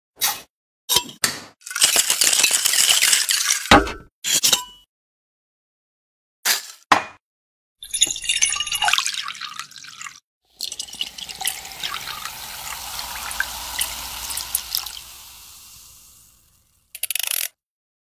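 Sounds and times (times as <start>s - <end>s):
rattling pour from shaker: 1.6s - 3.7s, 7.9s - 17.5s
water pouring into glass: 7.8s - 16.8s.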